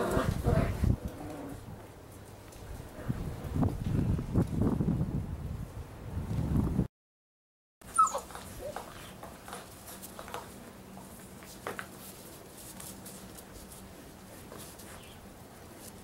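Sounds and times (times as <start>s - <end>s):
puppy yelp: 7.9s - 9.1s
puppies yipping: 7.9s - 9.2s
puppies scuffling: 7.9s - 16.0s.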